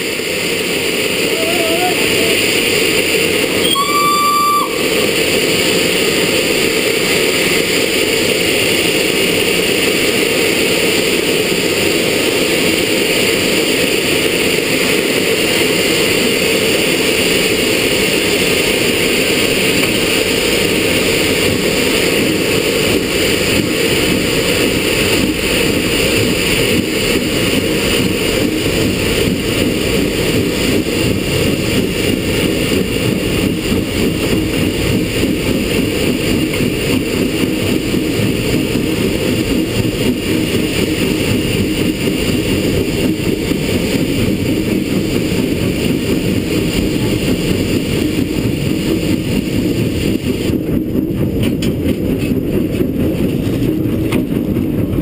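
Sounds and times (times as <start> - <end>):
steam locomotive cab noise: 0.0 - 55.0
steam whistle: 1.2 - 2.6, 3.5 - 5.6.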